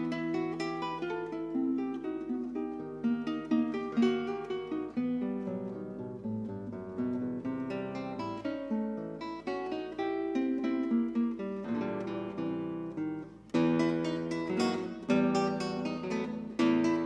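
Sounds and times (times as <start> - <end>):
acoustic guitar melody: 0.0 - 17.0.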